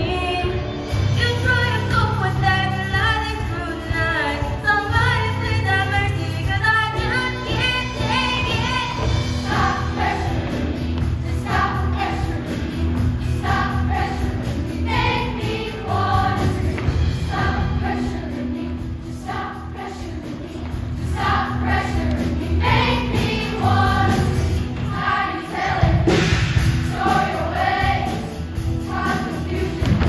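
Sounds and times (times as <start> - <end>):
musical accompaniment: 0.0 - 30.0
choir singing in chorus: 8.8 - 30.0.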